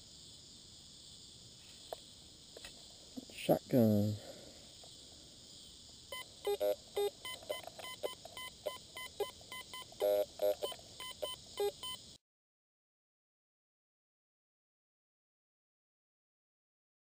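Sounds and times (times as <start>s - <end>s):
high insect hiss: 0.0s - 12.2s
metal detector short beeps: 6.5s - 12.0s.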